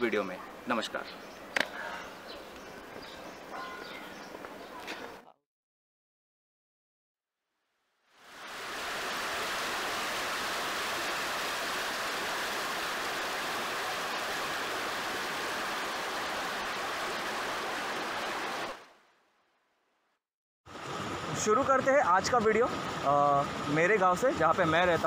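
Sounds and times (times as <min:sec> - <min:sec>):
water rushing over rocks: 0:08.2 - 0:18.9.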